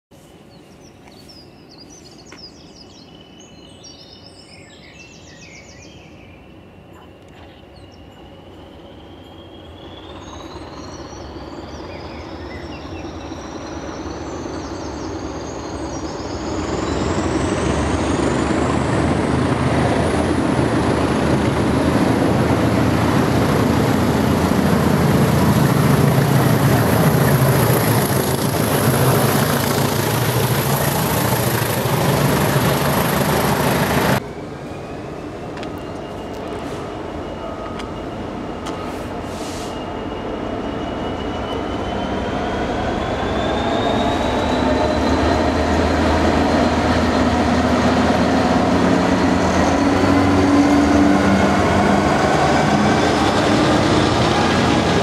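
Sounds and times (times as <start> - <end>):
faint birds chirping: 0.1 - 17.2
diesel locomotive engines: 0.2 - 55.0
high whistle rising in pitch: 39.7 - 46.7.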